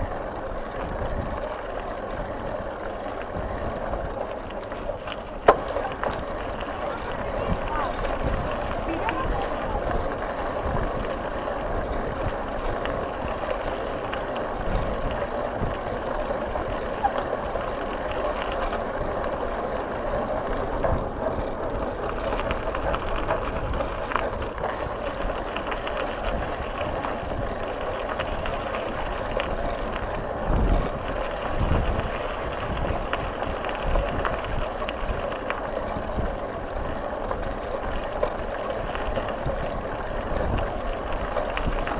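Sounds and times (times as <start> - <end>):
tyres rolling over gravel: 0.0 - 41.9
wind on microphone: 5.6 - 13.7, 22.4 - 35.3.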